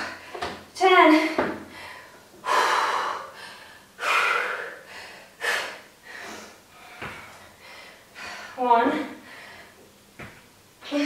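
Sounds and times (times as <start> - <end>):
woman breathing hard: 0.0 - 0.6, 1.2 - 8.6, 9.2 - 9.8.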